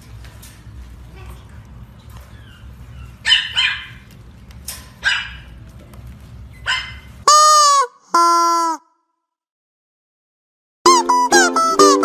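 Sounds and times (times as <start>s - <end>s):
puppy yips and whimpers: 2.2s - 4.0s, 5.0s - 5.5s, 6.5s - 7.1s
squeaky toy squeaks: 7.3s - 8.8s, 10.9s - 12.0s.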